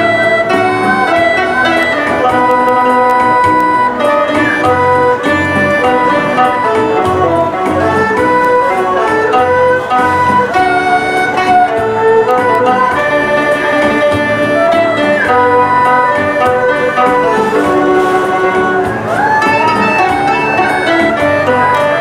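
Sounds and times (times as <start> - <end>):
erhu bowed melody: 0.0 - 22.0
lute plucking: 0.0 - 22.0.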